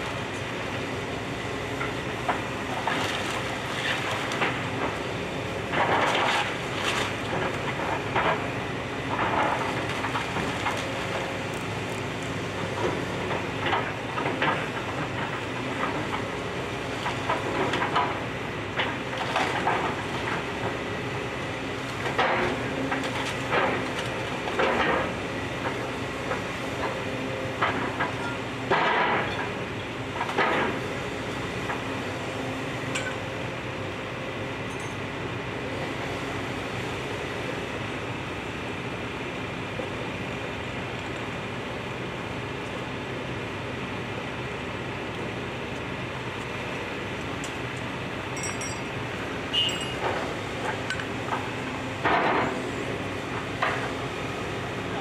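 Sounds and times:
excavator diesel engine running: 0:00.0 - 0:55.0.

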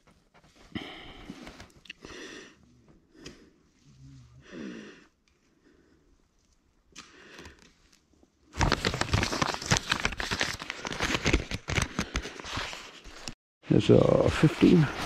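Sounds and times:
paper map crinkling: 0:07.3 - 0:13.4.

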